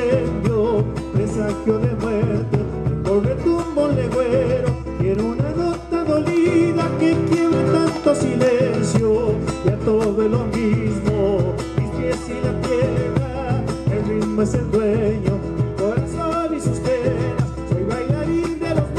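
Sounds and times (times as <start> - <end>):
man singing: 0.0 - 18.9
strummed acoustic guitar: 0.0 - 18.9.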